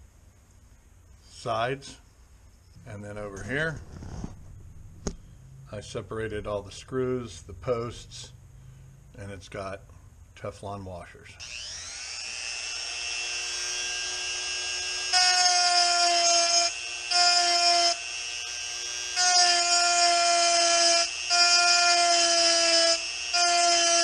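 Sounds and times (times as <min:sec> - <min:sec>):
rotary tool grinding metal: 0:11.4 - 0:24.0
rotary tool whining: 0:11.4 - 0:24.0.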